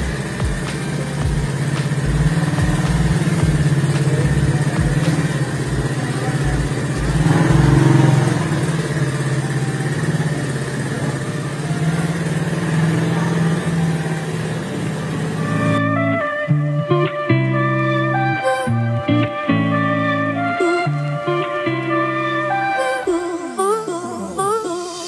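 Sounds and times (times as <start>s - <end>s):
quad bike engine idling: 0.0s - 16.0s.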